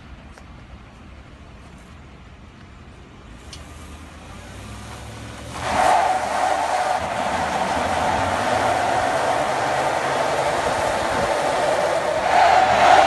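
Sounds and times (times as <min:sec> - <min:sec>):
truck engine accelerating hard: 0:03.7 - 0:13.0
tyres screeching: 0:05.5 - 0:13.0.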